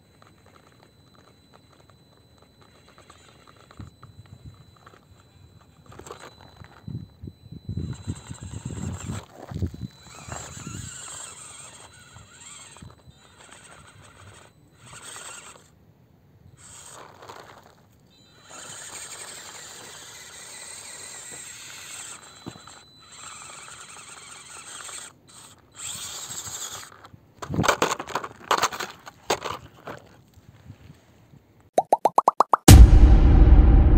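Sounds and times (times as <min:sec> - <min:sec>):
small electric motor whining: 0:00.0 - 0:15.8, 0:16.4 - 0:28.2.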